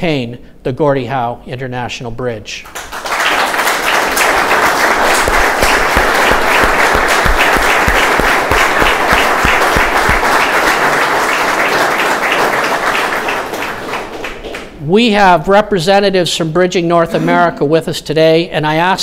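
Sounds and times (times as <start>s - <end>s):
audience applauding: 2.7s - 14.8s.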